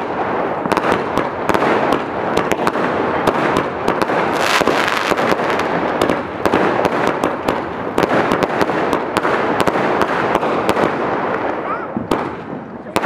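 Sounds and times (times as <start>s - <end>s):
firework bangs and pops: 0.0s - 13.0s.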